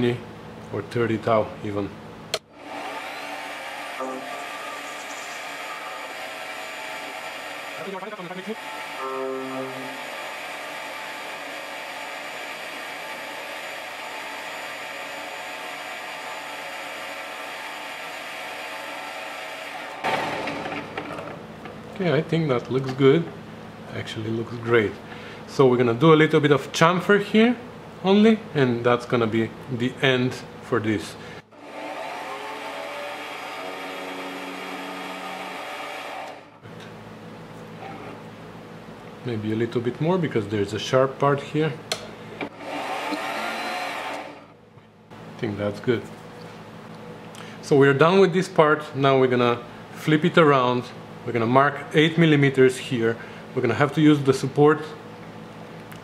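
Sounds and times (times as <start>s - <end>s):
metal lathe running: 2.6s - 21.4s, 31.6s - 36.6s, 42.4s - 44.6s
loud clunk: 20.0s - 21.4s.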